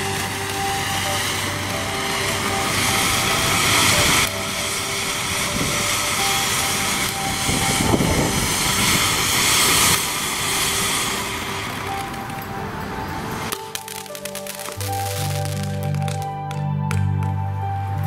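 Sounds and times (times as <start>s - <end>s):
firework fountain hissing: 0.0s - 18.0s.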